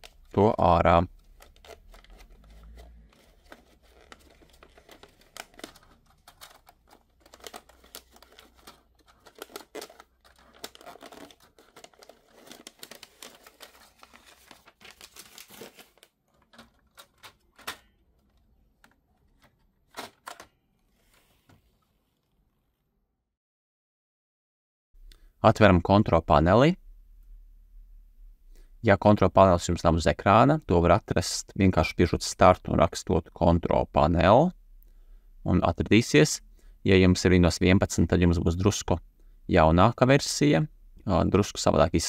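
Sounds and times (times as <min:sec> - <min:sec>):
paper rustling and crinkling: 0:01.1 - 0:18.3.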